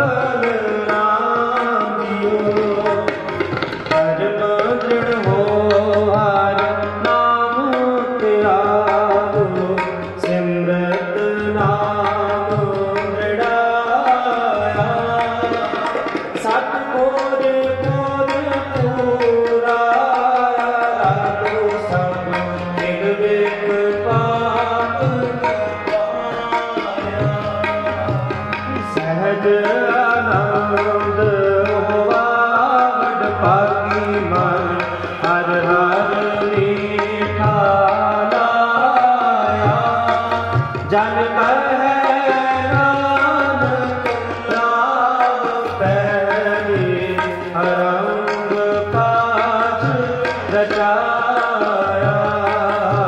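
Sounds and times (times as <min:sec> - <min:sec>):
tabla playing rhythm: 0:00.0 - 0:53.0.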